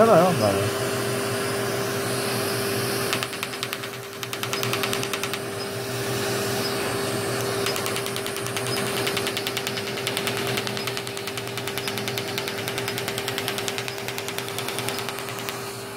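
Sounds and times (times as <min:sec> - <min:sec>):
laser unit hum: 0:00.0 - 0:15.9
laser clicking pulses: 0:03.1 - 0:05.8, 0:07.4 - 0:15.8.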